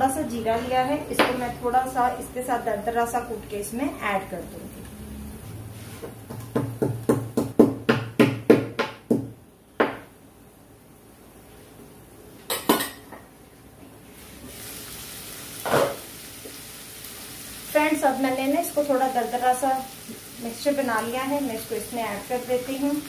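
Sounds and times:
pestle pounding in a mortar: 6.3 - 10.0
kitchenware knock: 6.3 - 10.1.

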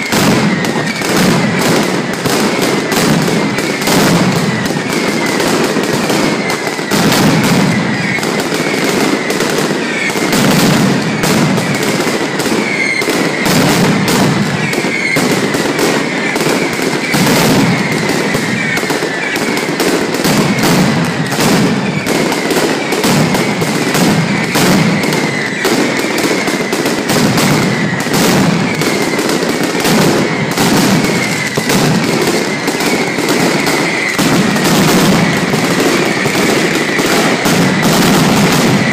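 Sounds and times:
firecrackers exploding in a barrage: 0.0 - 38.9.

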